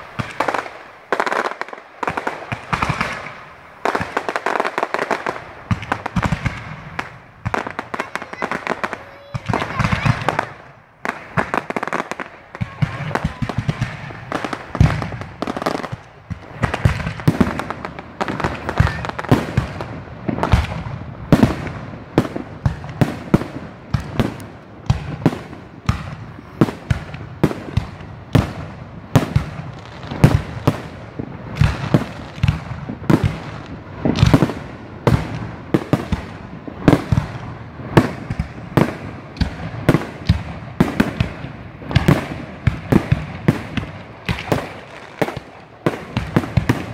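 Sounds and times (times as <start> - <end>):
fireworks bursting: 0.0 - 46.9.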